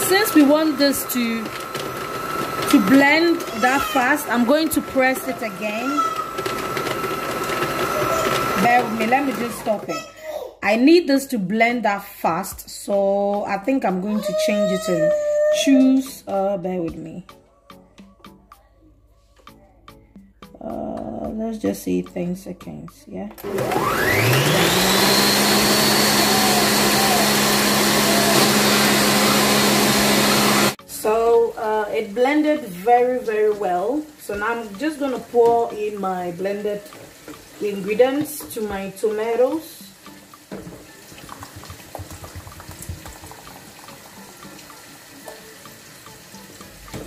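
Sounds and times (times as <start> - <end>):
blender motor whining: 0.0 - 9.9, 23.4 - 30.8
thick puree pouring with plops: 40.1 - 47.0.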